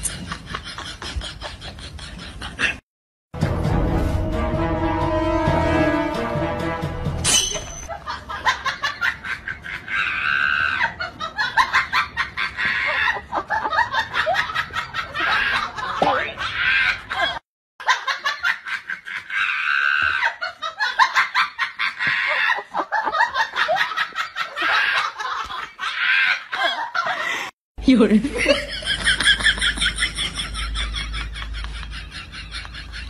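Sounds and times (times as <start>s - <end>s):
shrill cackling laughter: 7.8s - 27.5s, 28.5s - 33.0s.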